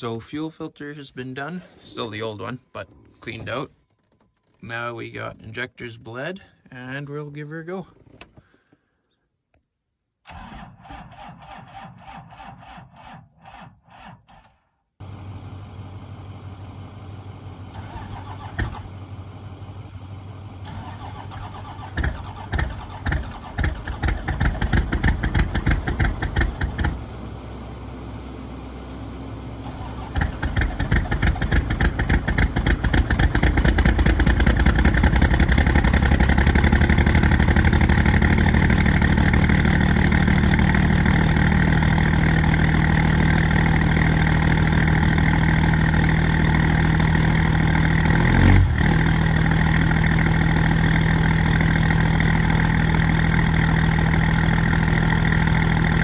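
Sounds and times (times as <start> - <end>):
diesel engine cranking: 1.7 - 6.2, 10.2 - 15.2, 17.4 - 27.6, 29.4 - 56.0
diesel engine running: 15.0 - 56.0.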